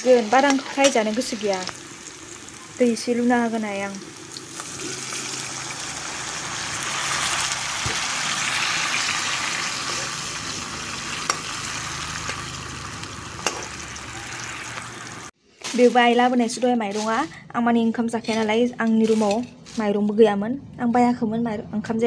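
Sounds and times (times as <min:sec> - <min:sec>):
potatoes sizzling in oil: 0:00.0 - 0:17.1.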